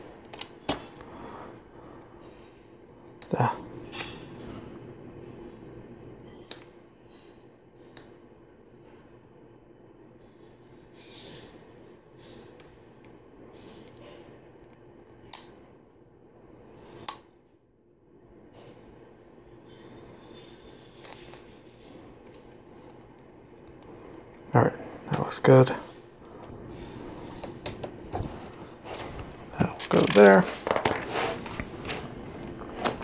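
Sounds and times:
plastic parts rustling: 26.3 - 33.0.

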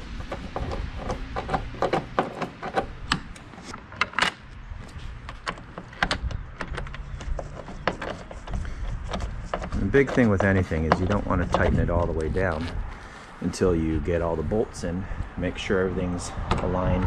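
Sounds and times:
screwdriver clicks and metal taps: 0.2 - 11.8.

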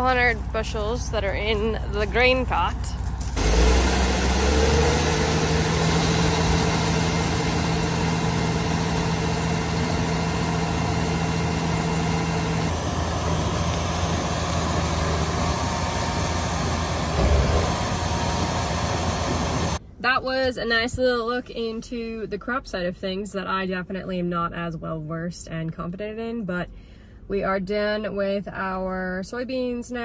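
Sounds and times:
tractor engine running: 0.0 - 19.8.

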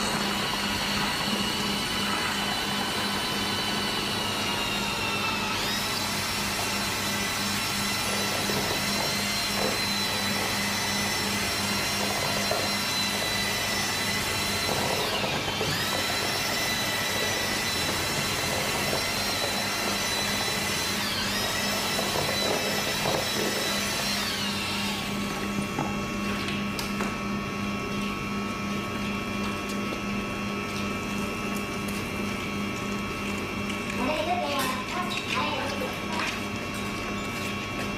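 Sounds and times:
power tool motor whining: 0.0 - 27.3.

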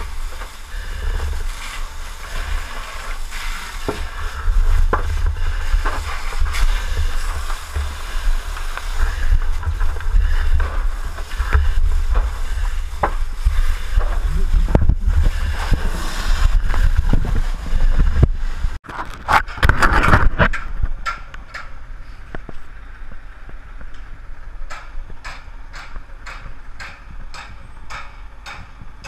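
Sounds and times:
hose nozzle spraying water: 0.0 - 18.7
heavy rumble: 0.0 - 21.0.

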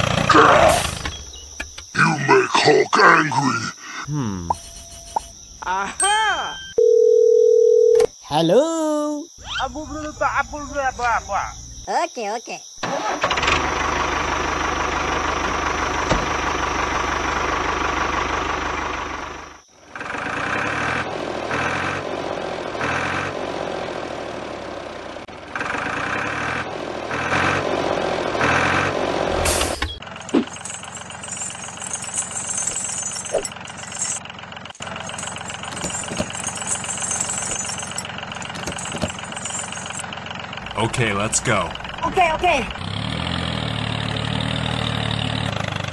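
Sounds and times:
tractor engine running: 0.0 - 2.0, 12.8 - 45.9.

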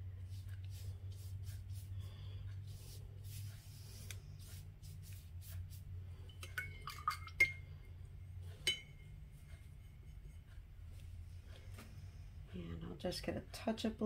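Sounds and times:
steady low hum: 0.0 - 14.0
paintbrush clinking on glass jar: 8.6 - 9.1.

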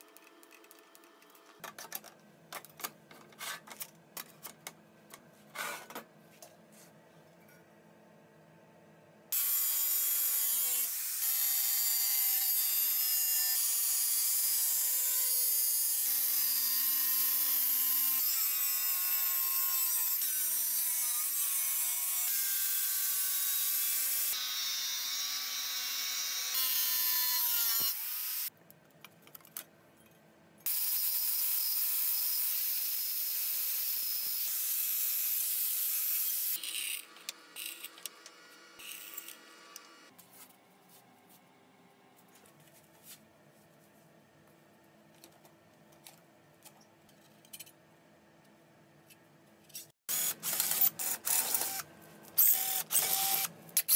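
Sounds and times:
angle grinder cutting metal: 9.4 - 28.5, 30.7 - 40.1.

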